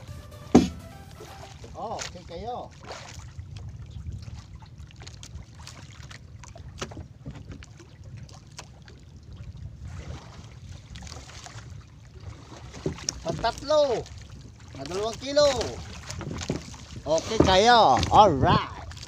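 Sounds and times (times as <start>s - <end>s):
wind rumble on microphone: 2.2s - 19.0s
clicks and knocks of fish handling: 6.8s - 7.6s.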